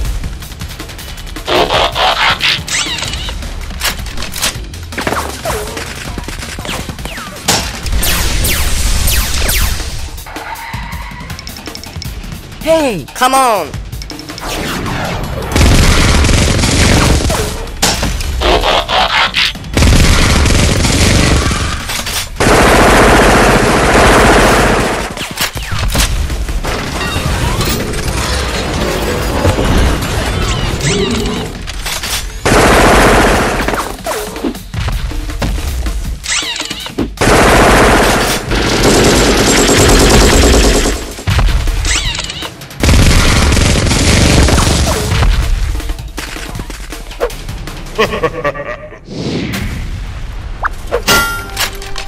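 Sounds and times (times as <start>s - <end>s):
background music: 0.0s - 52.0s
rapid gunfire: 14.4s - 28.5s, 32.4s - 34.2s, 37.2s - 41.9s, 42.8s - 45.7s.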